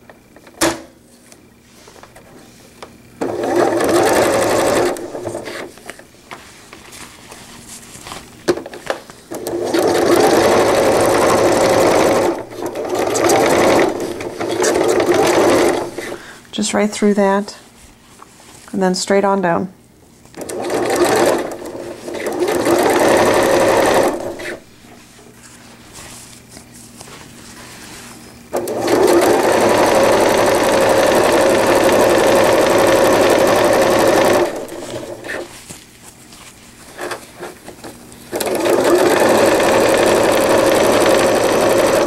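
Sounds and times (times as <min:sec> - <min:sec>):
sewing machine stitching: 0:03.2 - 0:05.7, 0:09.3 - 0:16.2, 0:20.4 - 0:24.6, 0:28.5 - 0:35.5, 0:38.3 - 0:42.0.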